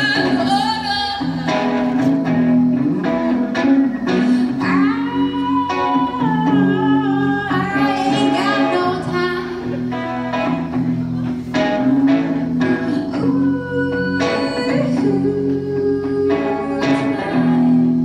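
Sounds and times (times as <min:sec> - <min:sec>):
woman singing: 0:00.0 - 0:01.9, 0:04.1 - 0:09.8, 0:12.1 - 0:18.0
acoustic guitar: 0:00.0 - 0:18.0.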